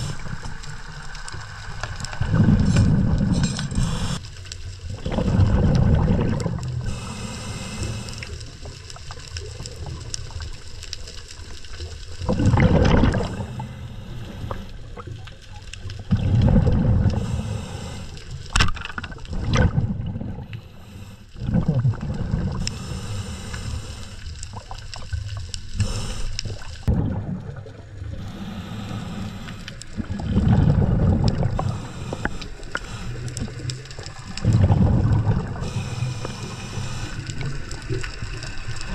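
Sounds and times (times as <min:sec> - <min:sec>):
exhaled bubbles rumbling: 0:00.0 - 0:38.9
regulator hiss on inhale: 0:02.4 - 0:04.6, 0:06.8 - 0:08.8, 0:13.3 - 0:15.0, 0:17.0 - 0:18.6, 0:20.5 - 0:21.4, 0:22.5 - 0:24.6, 0:25.7 - 0:26.9, 0:28.1 - 0:30.1, 0:31.4 - 0:34.1, 0:35.4 - 0:38.9.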